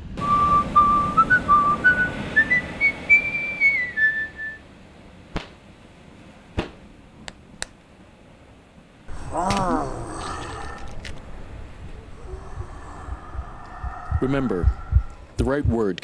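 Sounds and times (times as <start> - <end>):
person whistling a tune: 0.2 - 4.6
voice crying out: 9.1 - 15.2.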